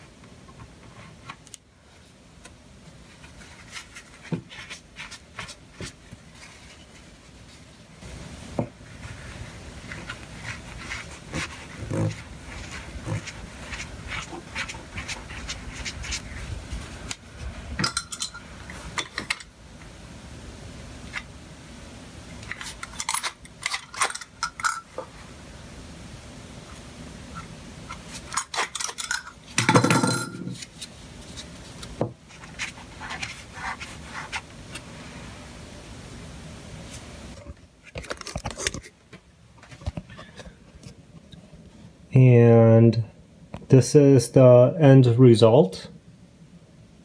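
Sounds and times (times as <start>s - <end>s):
soft rubbing: 2.8s - 8.1s, 8.8s - 17.7s, 30.5s - 35.4s.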